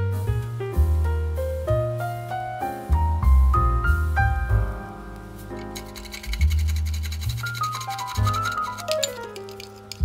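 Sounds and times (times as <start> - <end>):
low bass: 0.0 - 5.5.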